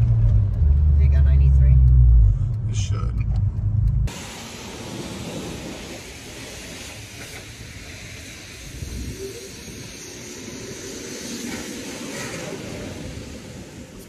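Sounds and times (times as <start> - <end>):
pressure washer spraying water: 4.1 - 13.1.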